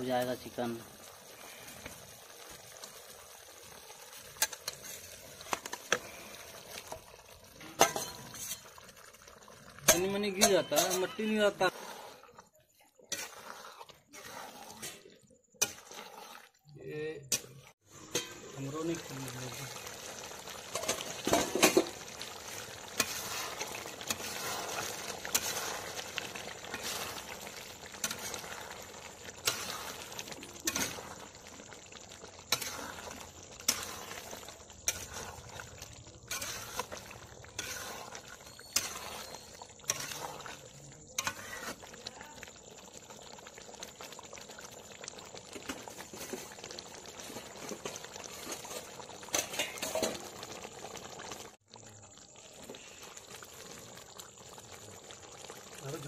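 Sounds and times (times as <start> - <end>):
curry bubbling in a pan: 0.0 - 56.0
metal spatula scraping a pan: 4.2 - 9.0, 9.8 - 18.7, 20.6 - 31.4, 32.4 - 42.0, 47.6 - 50.4.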